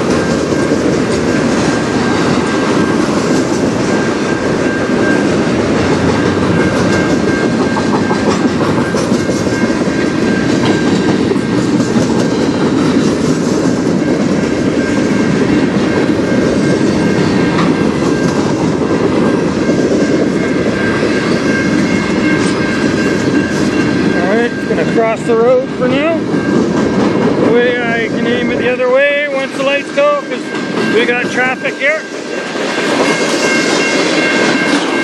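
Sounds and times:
wheels clicking over rail joints: 0.0 - 25.0
freight train rumbling past: 0.0 - 35.0.

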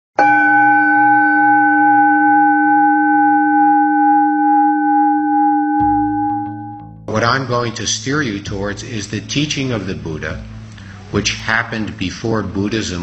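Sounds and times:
singing bowl ringing: 0.2 - 7.0.

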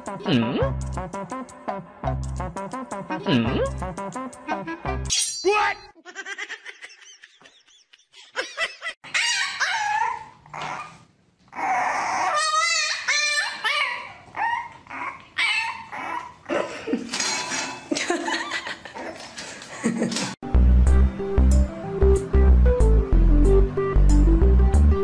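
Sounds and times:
dog barking and whining: 9.0 - 16.5.

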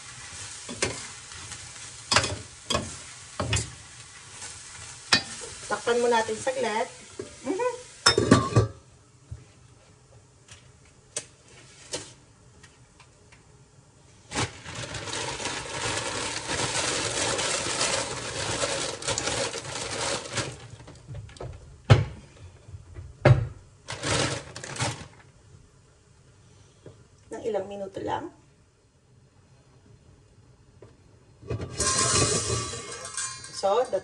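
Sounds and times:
plastic bag crinkling: 14.3 - 21.0, 23.8 - 25.3.

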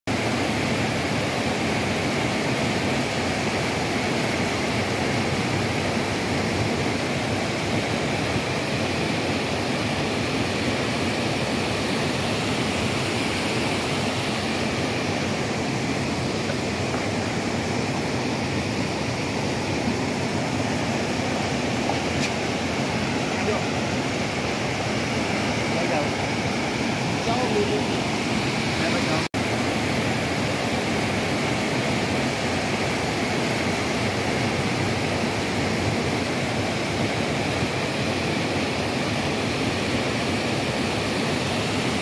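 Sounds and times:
waterfall rushing over rocks: 0.1 - 42.0.

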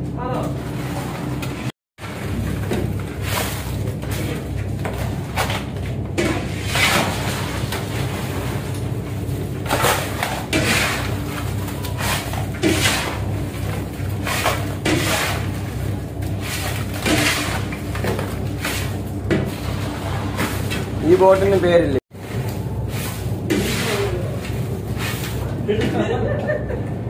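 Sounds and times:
low machine hum: 0.0 - 27.0
fish and ice scraped across deck: 6.4 - 8.8, 9.6 - 17.8, 18.5 - 21.0, 22.2 - 25.5.

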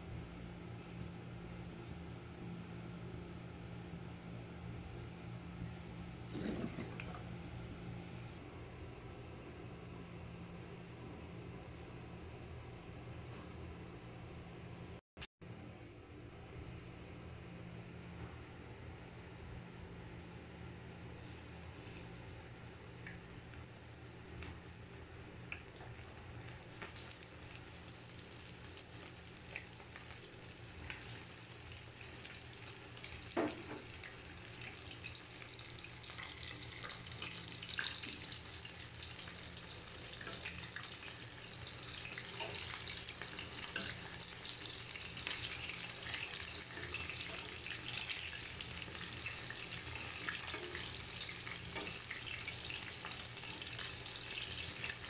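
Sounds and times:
chicken deep-frying in oil: 21.2 - 55.0.

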